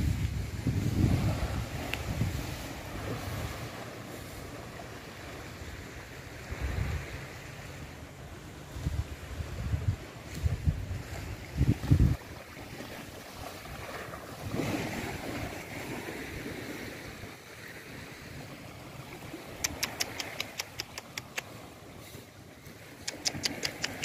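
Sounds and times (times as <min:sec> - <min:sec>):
wind buffeting microphone: 0:00.0 - 0:17.3
small waves washing on shore: 0:00.0 - 0:24.0
sharp clicks: 0:19.6 - 0:21.5, 0:23.0 - 0:24.0.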